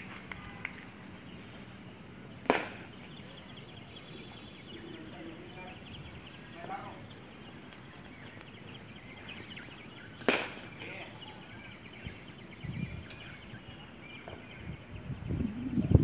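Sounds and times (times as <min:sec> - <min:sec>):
distant bird calls: 0:00.0 - 0:16.0.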